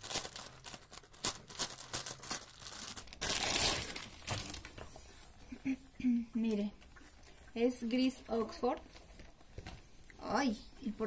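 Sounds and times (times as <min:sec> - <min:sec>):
loud plastic rustle: 0:00.0 - 0:05.0
plastic wrapping crinkling: 0:00.0 - 0:05.2.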